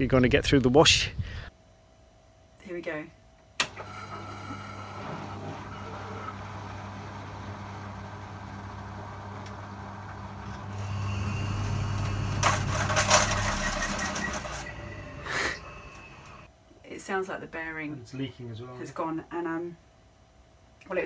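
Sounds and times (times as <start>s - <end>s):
washing machine motor humming: 3.6s - 16.5s
loud metallic rattling: 10.8s - 16.5s.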